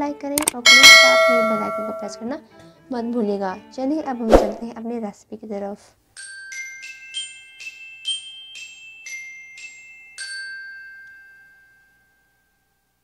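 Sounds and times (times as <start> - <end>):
glockenspiel-like chime jingle: 0.6 - 2.3, 6.2 - 12.8.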